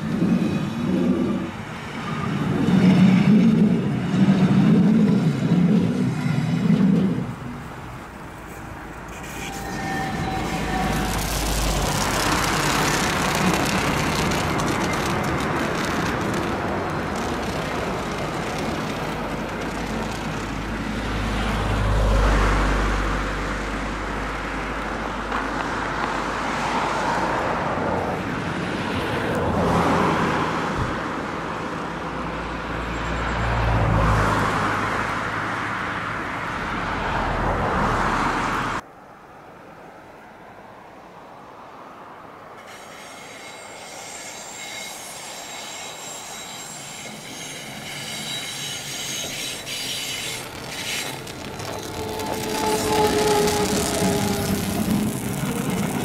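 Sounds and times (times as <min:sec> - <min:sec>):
train wheels rumbling on rails: 0:00.0 - 0:22.3, 0:42.6 - 0:56.0.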